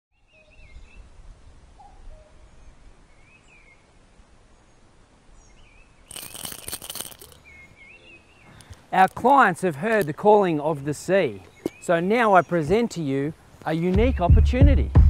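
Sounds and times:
birds chirping: 4.8 - 13.9
loud rustling: 6.1 - 7.5.

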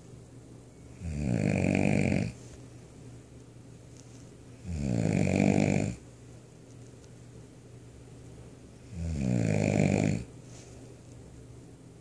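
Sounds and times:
person snoring loudly: 1.0 - 2.4, 4.6 - 6.0, 8.9 - 10.3.

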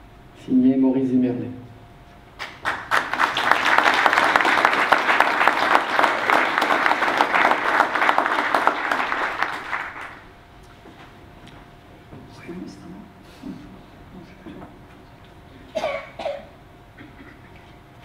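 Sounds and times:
audience applauding: 2.4 - 10.3.

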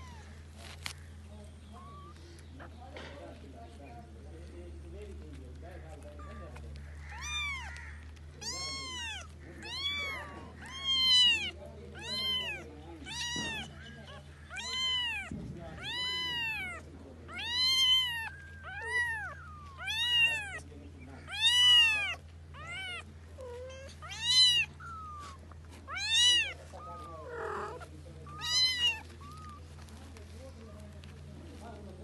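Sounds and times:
kitten meowing: 0.0 - 0.3, 1.7 - 2.2, 6.1 - 20.6, 21.2 - 29.7.

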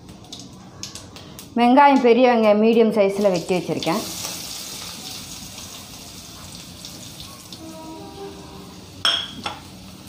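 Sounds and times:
onion sizzling in hot oil: 3.1 - 10.0.

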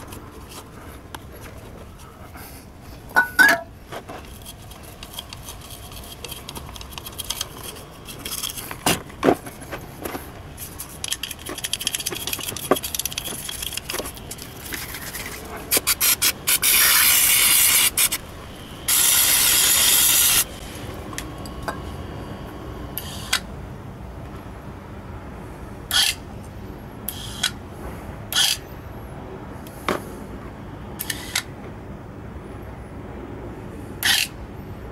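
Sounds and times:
toothbrush scrubbing metal bore: 4.2 - 8.7.

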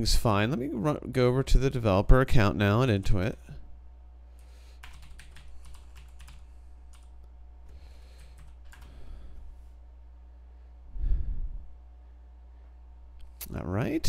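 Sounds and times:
keyboard typing: 4.8 - 9.0.

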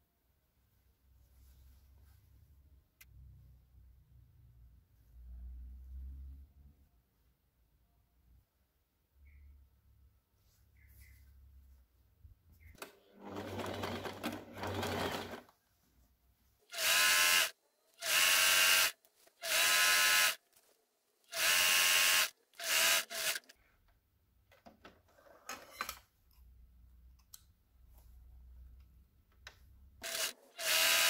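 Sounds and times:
sewing machine whirring: 12.8 - 15.5, 16.7 - 20.5, 21.3 - 23.6, 30.0 - 31.0.

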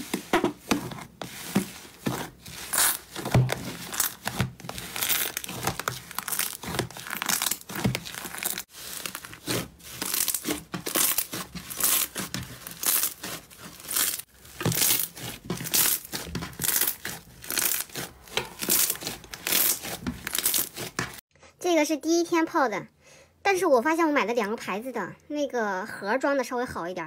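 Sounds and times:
slime squelching and crackling: 0.0 - 21.2.

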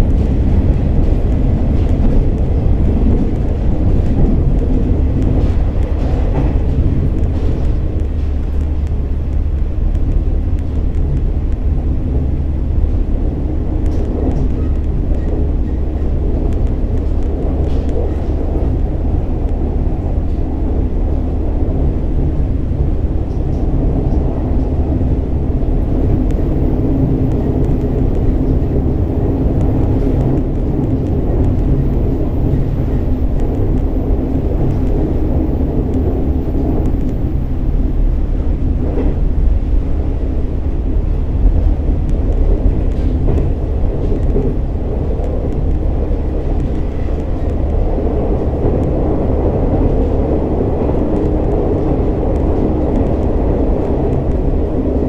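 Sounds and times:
diesel engine drone: 0.0 - 55.0
wheels rumbling on rails: 0.0 - 55.0.

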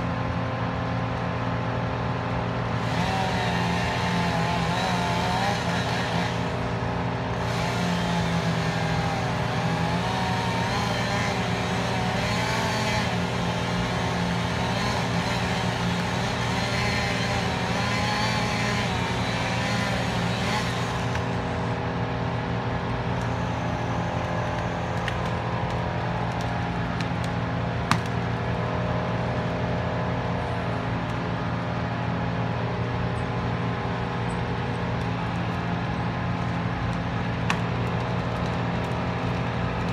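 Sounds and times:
heavy diesel engine running: 0.0 - 39.9.

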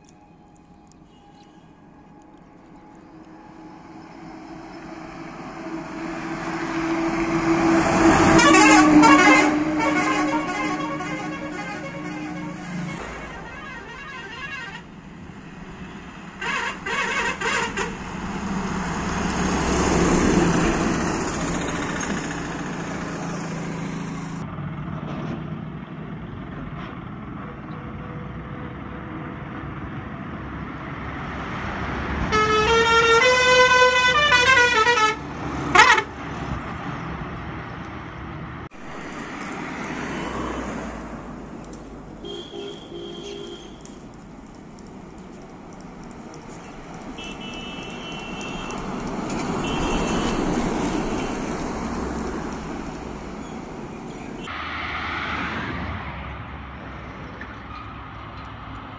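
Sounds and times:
bus engines running: 0.0 - 58.9
bus horn honks: 5.6 - 14.9, 16.4 - 18.1, 32.3 - 36.2, 42.2 - 44.0, 47.2 - 48.9, 49.5 - 51.4
musical horn playing a tune: 5.7 - 14.8, 32.3 - 36.1.

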